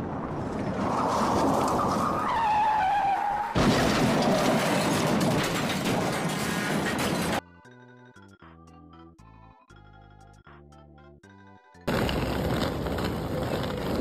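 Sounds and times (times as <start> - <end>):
music: 7.4 - 11.9.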